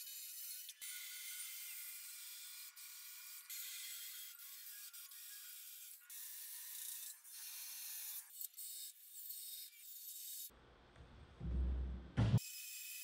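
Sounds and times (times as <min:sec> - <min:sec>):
dull low noise: 0:10.6 - 0:12.4.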